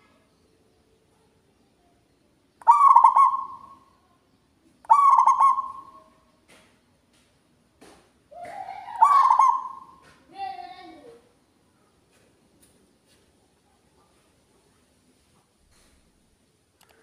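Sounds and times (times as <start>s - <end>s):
dove cooing: 2.6s - 3.8s, 4.9s - 6.1s, 8.4s - 10.0s.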